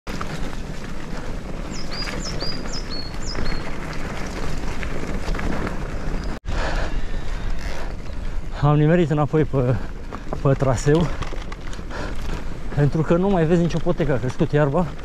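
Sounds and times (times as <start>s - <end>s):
bike rattling over bumps: 0.1s - 15.0s
bike rolling on dirt trail: 0.1s - 15.0s
bird singing: 1.6s - 3.7s.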